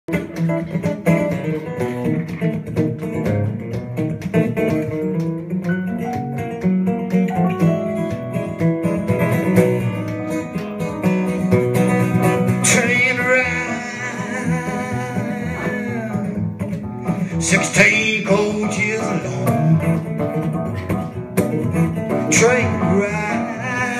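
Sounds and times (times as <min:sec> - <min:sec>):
acoustic guitar: 0:00.1 - 0:23.9
stage piano: 0:00.1 - 0:23.9
man singing: 0:12.5 - 0:20.1, 0:21.7 - 0:23.9.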